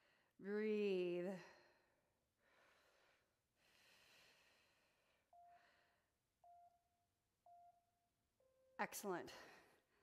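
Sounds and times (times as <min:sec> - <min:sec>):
faint breathing: 0:01.4 - 0:06.3
timer beeps: 0:05.3 - 0:09.6.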